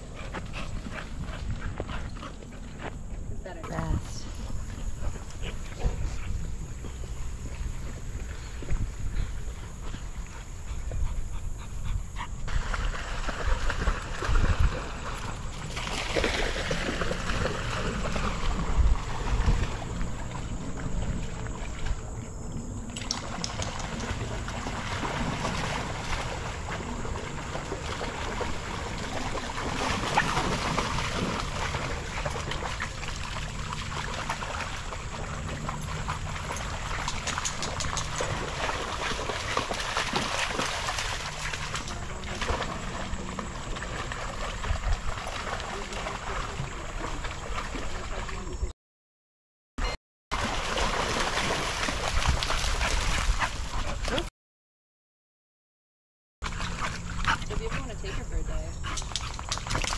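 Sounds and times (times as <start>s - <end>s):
dogs splashing through water: 0.0s - 48.7s, 50.3s - 54.3s, 56.4s - 59.9s
stream trickling: 12.5s - 48.6s.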